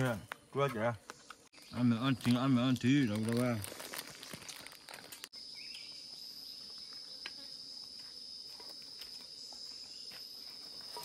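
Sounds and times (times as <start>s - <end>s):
insects buzzing: 0.0s - 11.0s
hands handling plastic wrapping: 2.0s - 5.3s.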